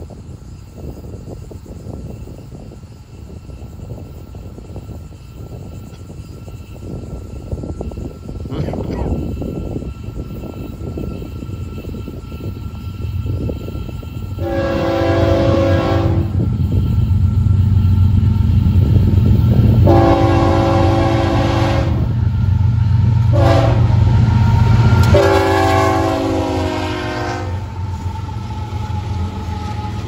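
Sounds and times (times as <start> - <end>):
locomotive engines rumbling: 0.0 - 30.0
locomotive air horn: 14.4 - 16.4, 19.8 - 22.2, 23.2 - 24.0, 25.0 - 28.1.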